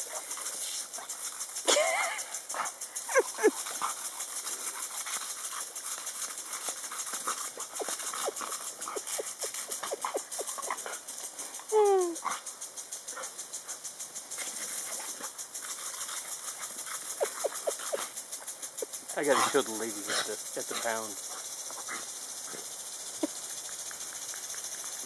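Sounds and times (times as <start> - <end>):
sprinkler spray hissing: 0.0 - 25.0
dog whine: 7.8 - 10.8, 17.2 - 18.0.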